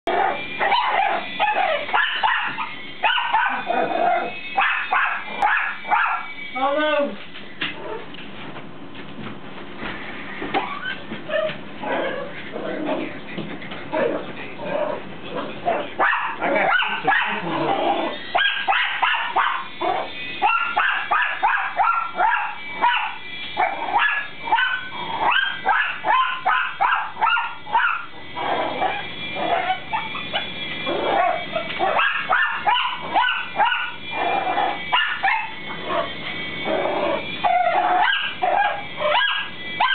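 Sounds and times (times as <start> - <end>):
dog barking high yappy barks: 0.6 - 3.7, 4.6 - 6.3, 16.0 - 17.4, 18.4 - 19.7, 20.4 - 23.2, 24.0 - 28.1, 31.2 - 34.0, 35.0 - 35.5, 38.0 - 39.9.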